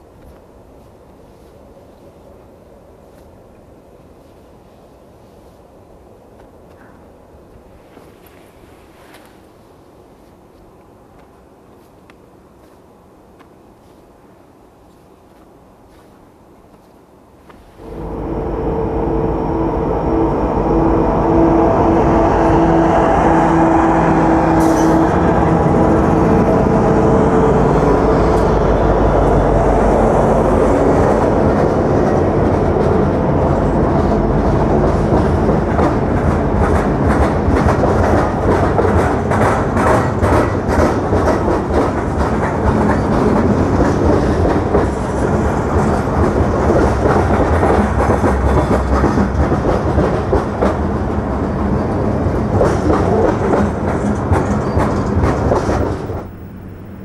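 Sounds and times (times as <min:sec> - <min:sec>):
locomotive engines humming: 0:17.5 - 0:57.0
train wheels clattering over rail joints: 0:24.5 - 0:57.0.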